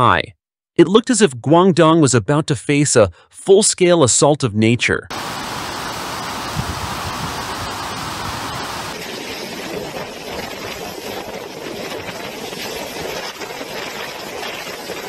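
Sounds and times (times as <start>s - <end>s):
wind and surf rushing: 5.1s - 15.0s
wind gusting through a street: 5.1s - 15.0s.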